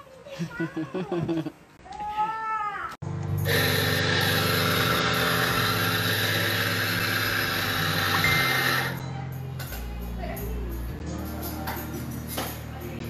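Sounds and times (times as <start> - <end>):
coffee grinder grinding: 3.4 - 9.0.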